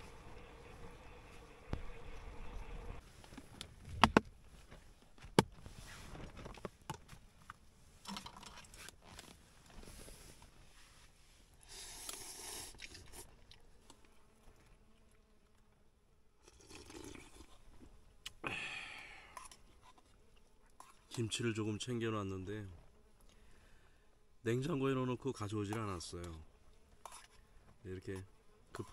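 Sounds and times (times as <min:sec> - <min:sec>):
man slurping and chewing noodles: 0:11.7 - 0:14.0, 0:16.4 - 0:18.5.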